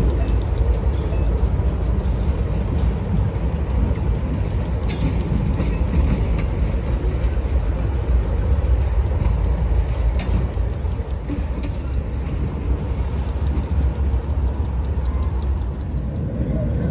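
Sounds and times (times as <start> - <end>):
diesel locomotive rumbling: 0.0 - 16.9
faint clicks: 8.4 - 16.6.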